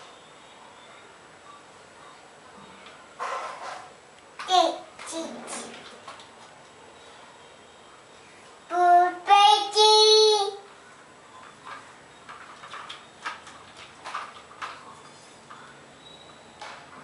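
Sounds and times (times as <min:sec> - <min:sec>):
toddler singing: 0:08.7 - 0:10.7.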